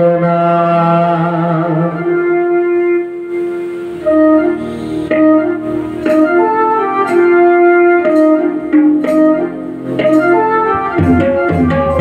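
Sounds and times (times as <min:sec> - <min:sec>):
man singing long note: 0:00.0 - 0:03.4
instrumental accompaniment: 0:00.0 - 0:12.0
keyboard melody: 0:00.0 - 0:12.0.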